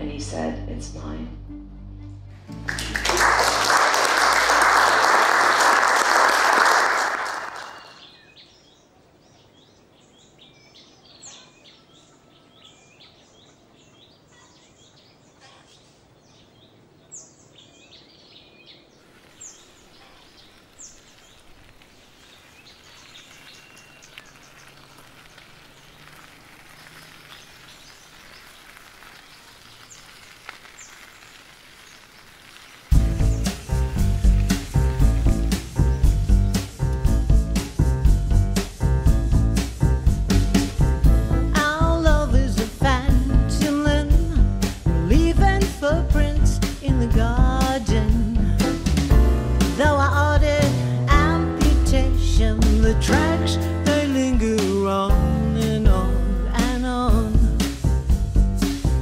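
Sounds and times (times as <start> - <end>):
faint outdoor background: 0.0 - 59.0
audience applauding: 2.5 - 8.0, 23.3 - 36.7
birds chirping: 7.2 - 38.0.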